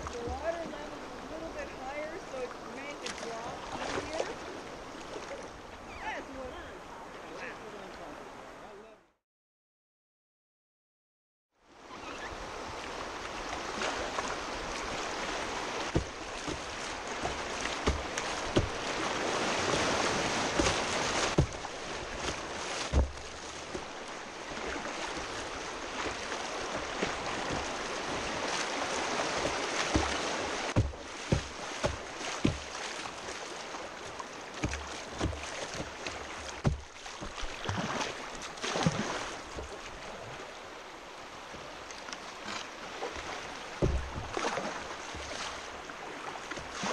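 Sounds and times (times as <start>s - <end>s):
knocks and splashes against boat: 0.0s - 5.5s, 13.5s - 40.6s, 41.6s - 46.9s
river rapid rushing: 12.0s - 46.9s.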